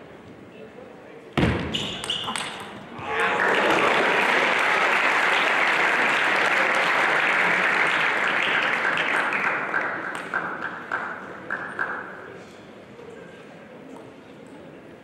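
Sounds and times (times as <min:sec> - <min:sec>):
audience applauding: 0:03.1 - 0:12.0.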